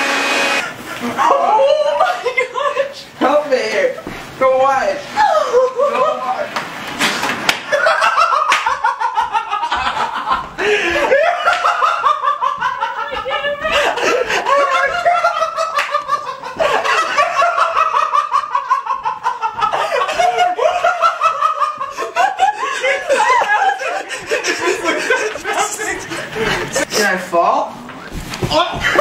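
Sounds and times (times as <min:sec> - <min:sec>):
person laughing hard: 0:07.7 - 0:26.8.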